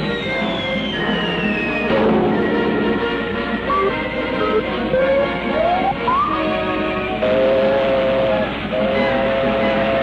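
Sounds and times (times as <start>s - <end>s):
cartoon background music: 1.9s - 7.5s
high tone sliding downward: 3.7s - 6.5s.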